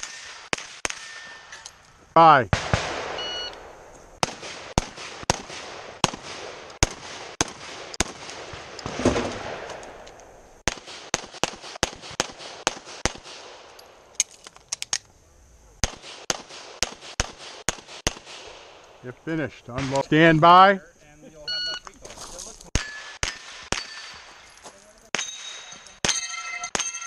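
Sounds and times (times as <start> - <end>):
pistol shots: 2.5 - 13.7, 15.8 - 18.8, 22.7 - 24.4
carbine gunshots: 2.5 - 13.8, 15.8 - 19.0, 22.7 - 24.5.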